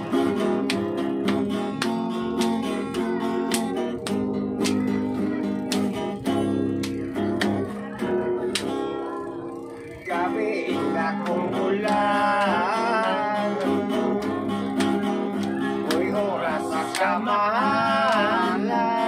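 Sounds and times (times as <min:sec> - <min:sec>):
acoustic guitar strumming: 0:00.0 - 0:19.0
man singing: 0:10.0 - 0:14.7, 0:15.6 - 0:19.0.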